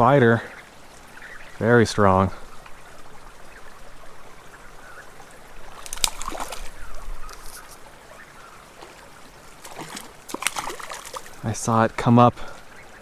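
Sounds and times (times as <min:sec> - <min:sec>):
creek trickling: 0:00.0 - 0:13.0
fish splashing in water: 0:05.6 - 0:07.4, 0:08.8 - 0:11.4.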